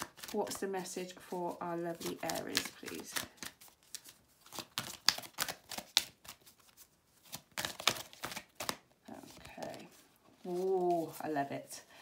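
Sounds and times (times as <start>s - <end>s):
cards being shuffled: 0.0s - 11.4s.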